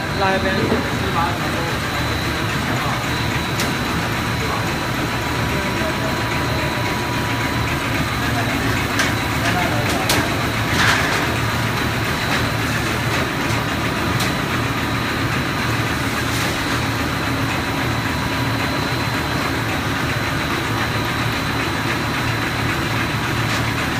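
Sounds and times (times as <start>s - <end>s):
thin steady high tone: 0.0s - 9.8s
machinery humming: 0.0s - 23.9s.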